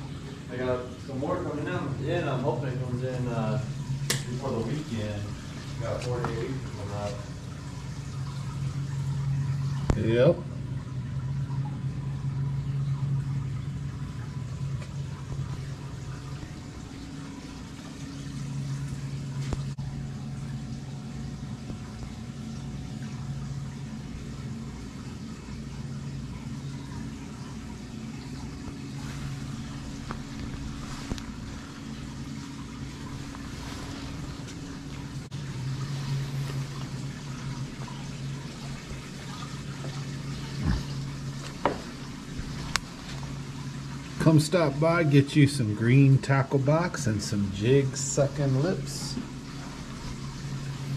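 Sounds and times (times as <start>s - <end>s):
low hum: 0.0s - 50.9s
rushing water-like noise: 28.1s - 50.9s.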